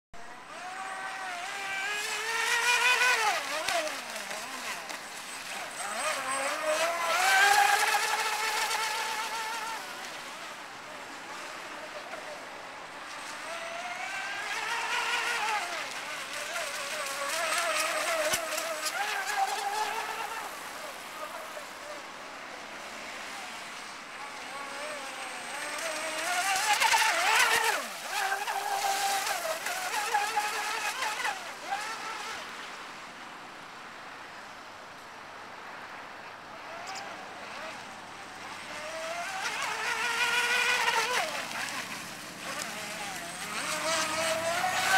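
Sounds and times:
electric motor whining: 0:00.3 - 0:12.4, 0:13.2 - 0:21.6, 0:24.2 - 0:32.4, 0:38.5 - 0:44.9.

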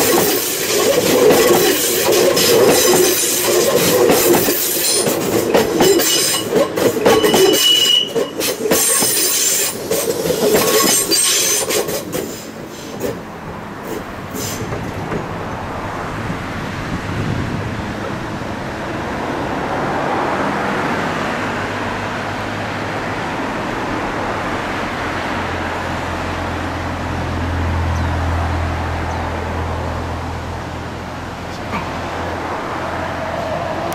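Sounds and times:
rumble of passing vehicles: 0:11.7 - 0:33.9.

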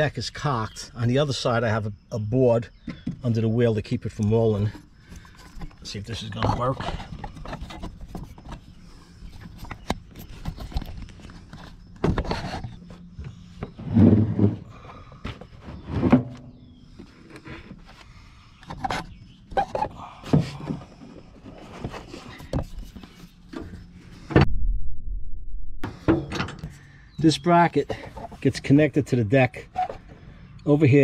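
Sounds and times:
mower deck knocks and scrapes: 0:09.4 - 0:17.7, 0:25.8 - 0:26.8.

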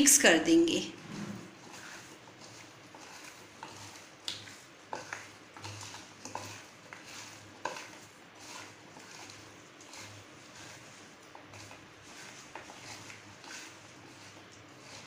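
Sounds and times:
potato slices shuffling in a bowl: 0:00.0 - 0:15.0.

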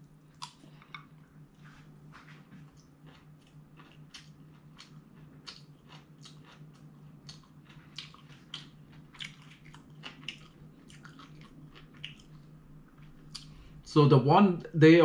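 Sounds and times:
person chewing food: 0:00.0 - 0:13.8.

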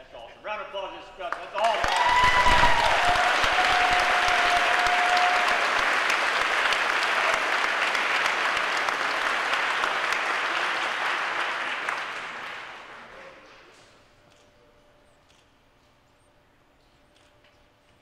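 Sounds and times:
crowd applauding: 0:01.3 - 0:13.5.

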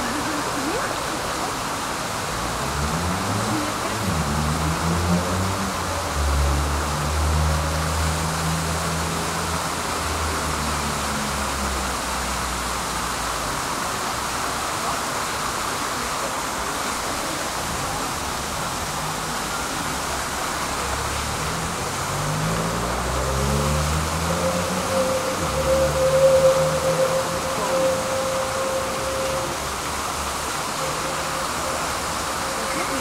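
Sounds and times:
city street traffic: 0:00.0 - 0:33.0
vehicle pulling away: 0:01.6 - 0:12.7, 0:17.9 - 0:33.0.

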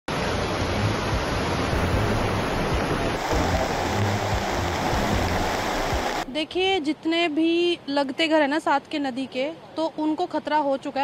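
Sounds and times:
floodwater rushing: 0:00.1 - 0:06.4.

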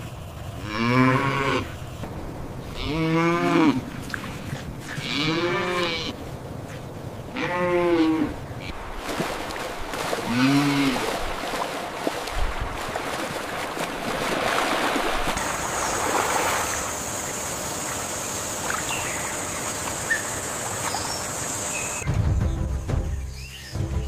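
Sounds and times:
steady high-pitched hiss: 0:00.0 - 0:05.1, 0:15.0 - 0:22.0
stream water rushing and splashing: 0:08.6 - 0:22.0.

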